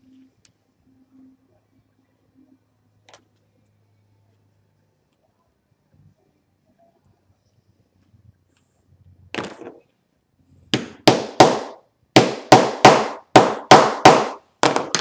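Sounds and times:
small hammer striking metal: 10.8 - 15.0.

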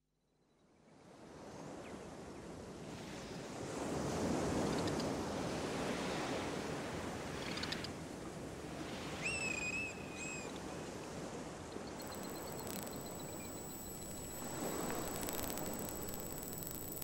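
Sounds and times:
faint thin high tone: 12.0 - 17.0.

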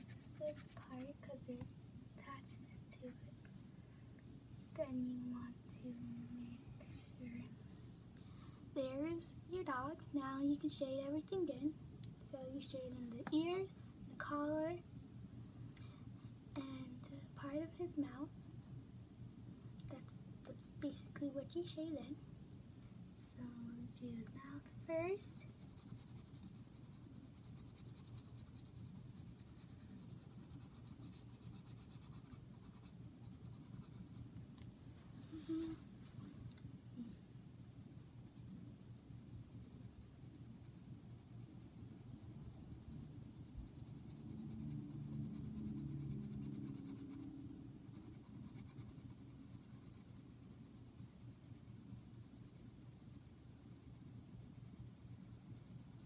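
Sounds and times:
pencil scratching on paper: 0.0 - 1.2, 24.0 - 34.3, 39.2 - 56.0.

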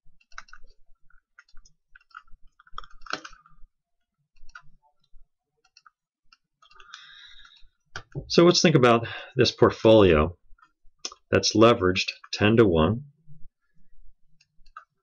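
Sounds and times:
computer mouse and keyboard clicks: 0.2 - 3.6, 4.3 - 8.2, 14.4 - 15.0.

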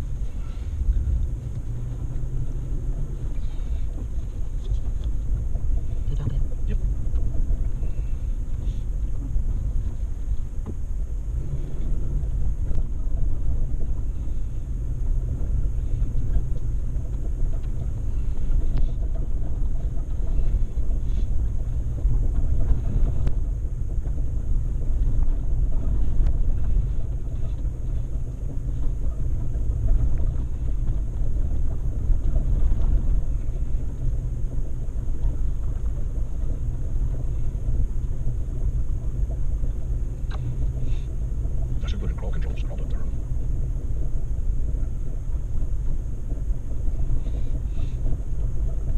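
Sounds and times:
off-road vehicle engine rumble: 0.0 - 48.9.

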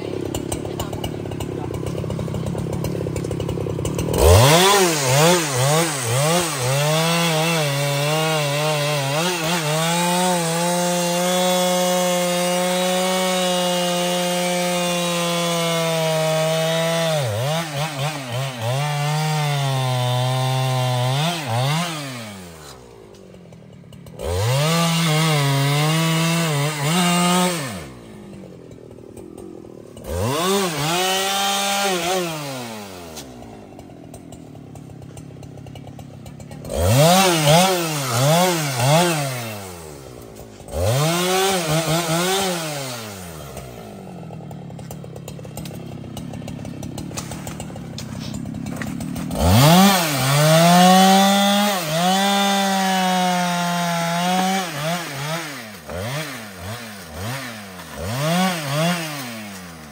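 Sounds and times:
chainsaw revving and cutting: 0.0 - 59.9.

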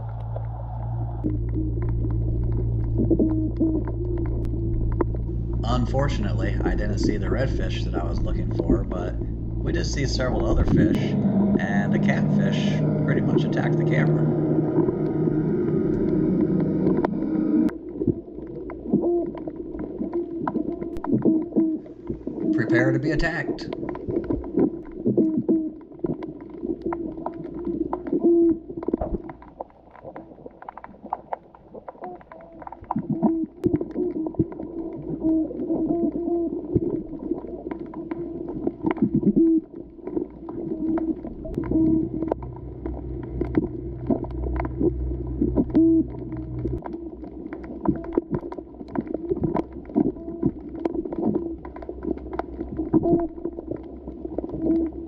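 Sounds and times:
low drone: 0.0 - 17.8, 40.8 - 55.0
low pulses: 0.0 - 29.6, 32.0 - 55.0
muffled underwater hum: 0.0 - 55.0.

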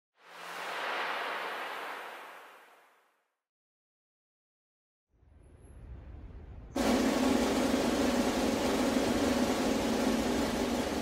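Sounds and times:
whoosh: 0.2 - 3.0.

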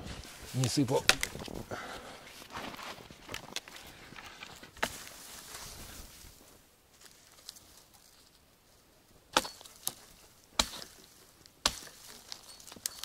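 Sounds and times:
chopping blows on wood: 1.0 - 1.4.

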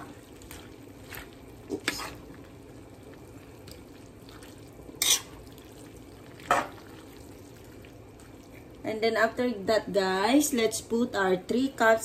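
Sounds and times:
wet stirring of soup: 0.0 - 8.8
metal spoon scraping pan: 5.0 - 5.3.

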